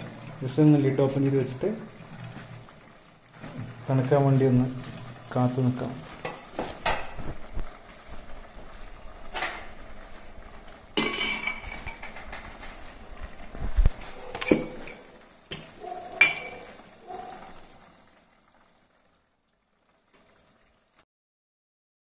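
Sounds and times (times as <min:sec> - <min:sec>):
metal ladle clinking on pots: 0:11.0 - 0:12.4, 0:14.3 - 0:16.7.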